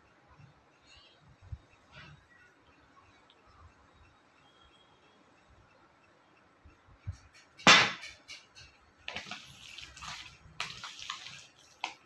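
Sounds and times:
loud sharp knock: 0:07.6 - 0:08.2.

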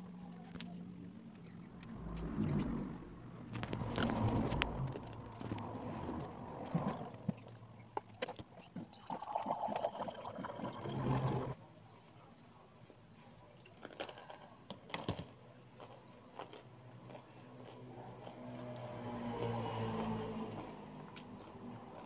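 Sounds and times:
fingers eating food from plates: 0:13.6 - 0:22.0.

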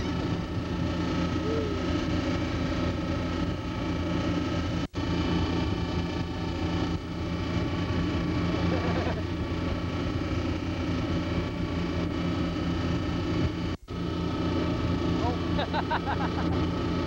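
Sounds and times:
low engine drone: 0:00.0 - 0:17.0.

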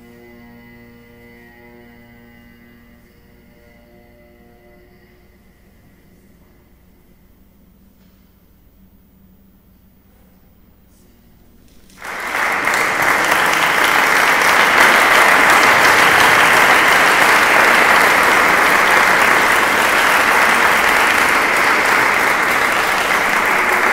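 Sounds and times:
audience applauding: 0:11.9 - 0:23.9.

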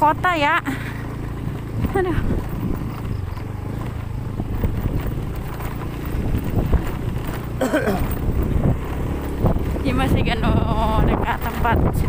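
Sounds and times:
knocks and rattles from bumps: 0:00.0 - 0:12.0
vehicle engine running: 0:00.0 - 0:12.0.

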